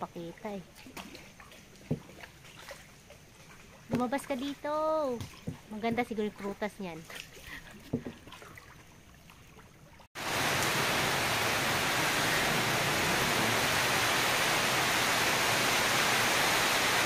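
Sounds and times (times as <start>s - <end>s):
water hissing: 10.2s - 17.0s.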